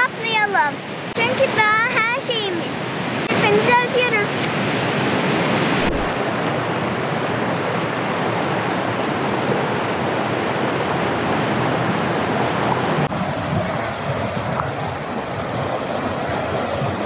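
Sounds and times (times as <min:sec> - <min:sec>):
river rushing over rocks: 0:00.7 - 0:13.4.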